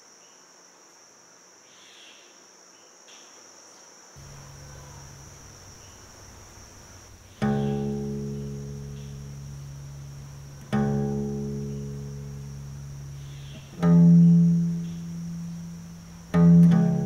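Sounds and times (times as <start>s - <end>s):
loud low note strike: 4.2s - 17.0s
low drone: 4.2s - 17.0s.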